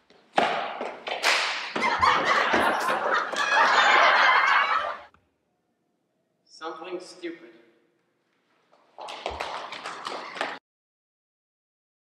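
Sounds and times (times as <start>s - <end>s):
sharp smack: 0.4s - 1.8s
loud laughing: 1.8s - 5.1s.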